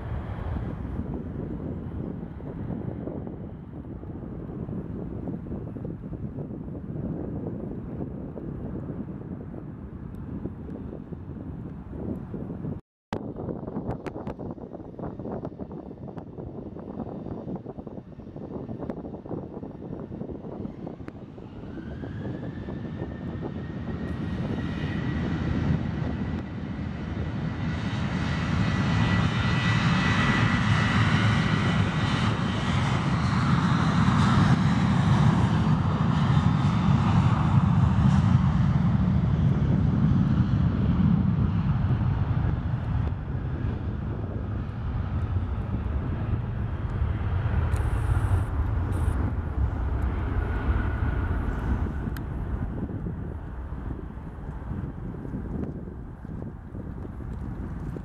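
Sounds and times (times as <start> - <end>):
airliner accelerating at takeoff power: 0.0 - 58.0
jet engines spooling up: 44.6 - 58.0.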